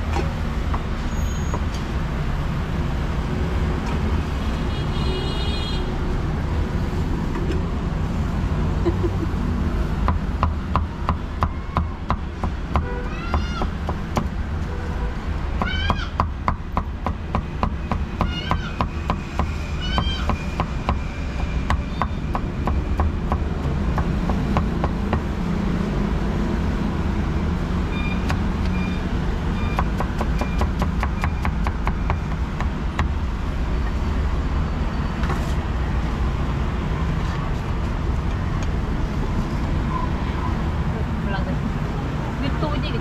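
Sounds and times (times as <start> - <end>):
short squeals: 1.0 - 1.8
cleaver chopping meat on wood: 10.0 - 14.3, 15.6 - 25.3, 29.8 - 33.2.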